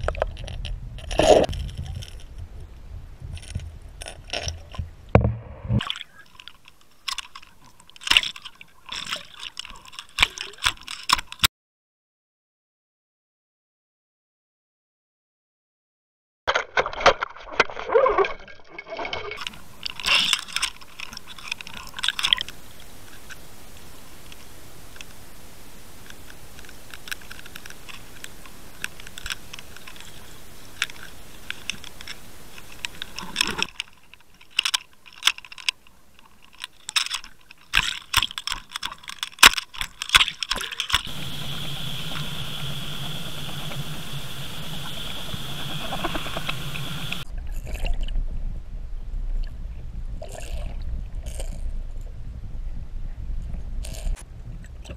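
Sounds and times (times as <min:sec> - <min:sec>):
steady hum: 0:19.4 - 0:33.8, 0:40.9 - 0:47.2
underwater water hiss: 0:41.0 - 0:47.2.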